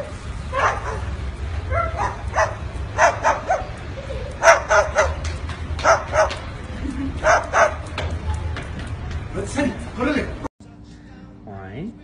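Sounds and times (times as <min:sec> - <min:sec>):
cockatoo barking like a dog: 0:00.0 - 0:06.4, 0:07.2 - 0:07.9.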